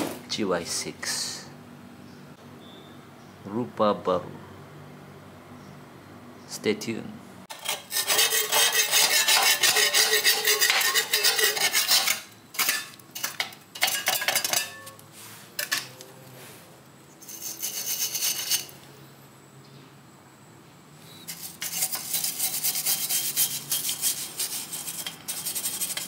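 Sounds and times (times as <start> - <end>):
metal scraping and clinking: 7.5 - 16.5, 17.2 - 18.8, 21.3 - 26.0.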